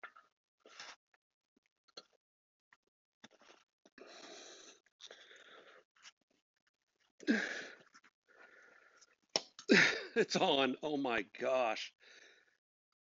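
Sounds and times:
man breathing hard: 7.3 - 9.0, 12.0 - 12.6.

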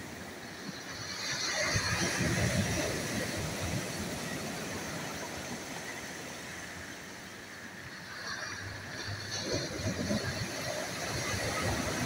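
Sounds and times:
waves crashing on pebble beach: 8.3 - 12.0.

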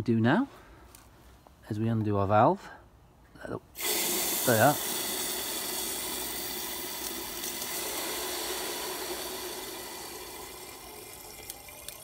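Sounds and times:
water rushing from release valve: 3.8 - 12.0.

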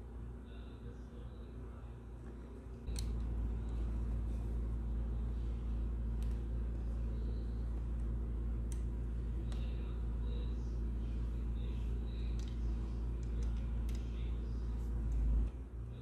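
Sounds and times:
steady low rumble: 0.0 - 16.0
light clicks of plastic parts: 2.8 - 3.8, 8.6 - 9.9, 12.2 - 14.3.

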